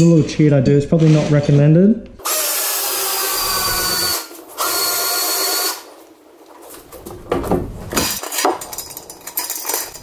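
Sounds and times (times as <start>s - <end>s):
cordless drill whining: 2.2s - 5.9s.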